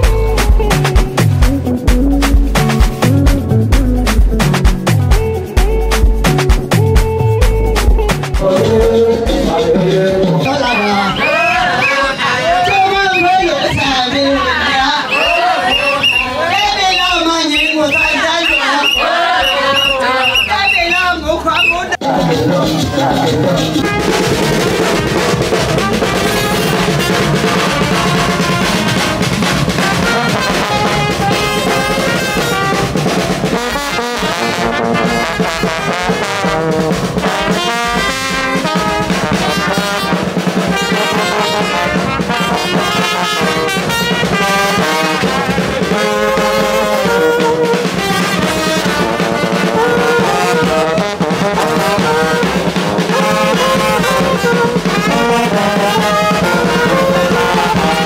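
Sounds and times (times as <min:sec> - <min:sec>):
bass drum: 0:00.0 - 0:11.7, 0:22.2 - 0:58.0
brass band playing: 0:00.0 - 0:58.0
tuba: 0:17.9 - 0:21.0, 0:21.6 - 0:58.0.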